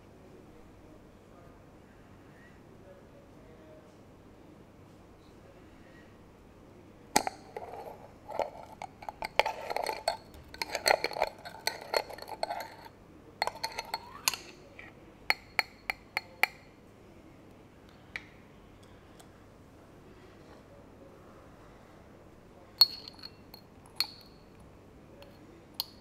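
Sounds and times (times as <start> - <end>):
metal lid twisted off glass jar: 7.2 - 14.6.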